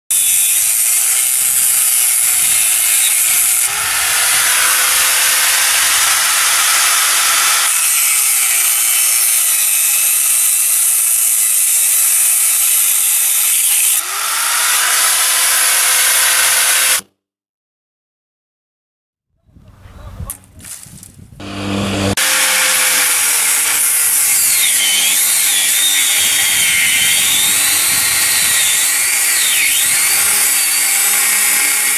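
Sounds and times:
angle grinder cutting steel: 0.1 - 17.1, 21.4 - 31.9.

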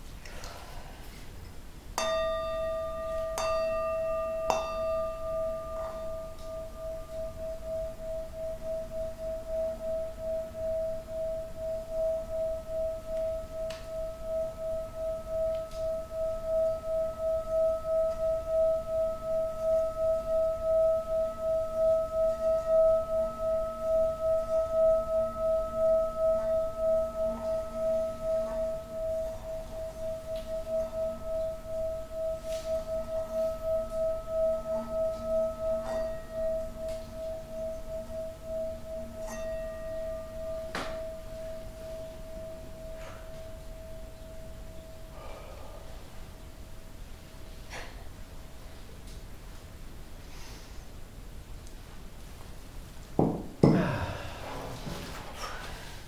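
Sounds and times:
singing bowl sustained tone: 1.9 - 47.6
singing bowl struck: 2.0 - 45.8.

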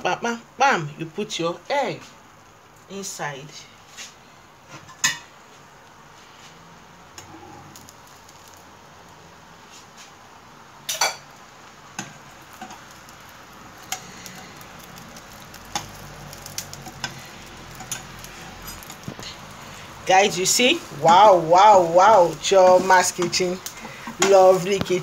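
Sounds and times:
egg and bread sizzling in pan: 0.0 - 25.0
sharp clicks and pops: 12.0 - 19.4.

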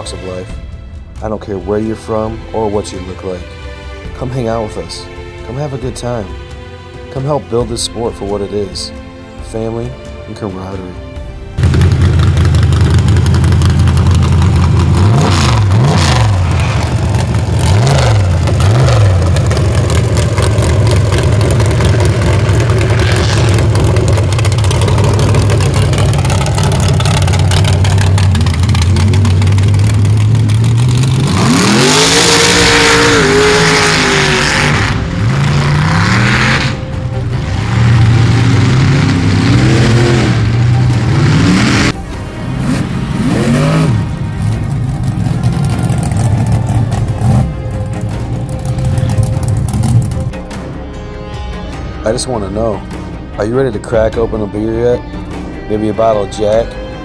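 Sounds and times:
engine revving: 11.5 - 50.4.

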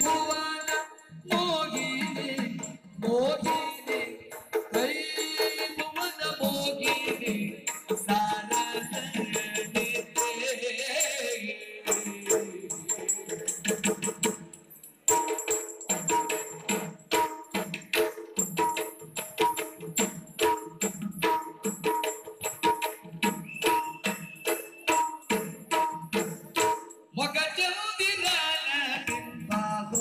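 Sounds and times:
person singing: 0.0 - 13.1, 27.2 - 30.0
metallic jingling: 0.0 - 27.2.

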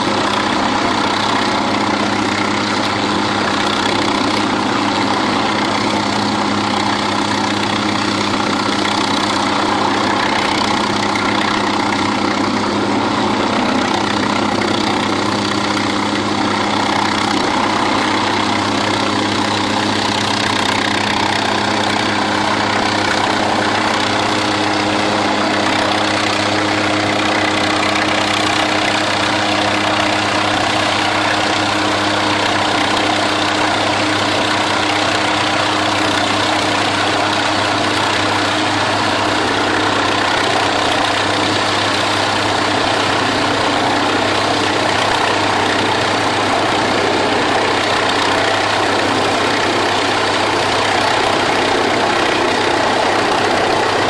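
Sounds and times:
helicopter hovering: 0.0 - 54.0.

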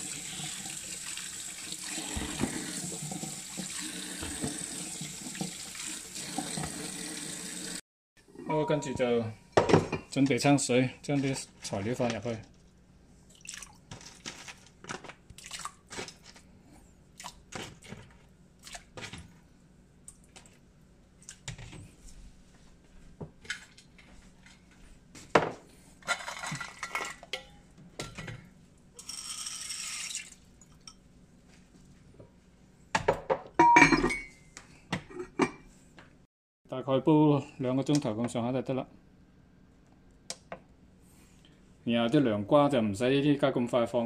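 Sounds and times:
crockery clinking and knocking: 33.0 - 34.4.

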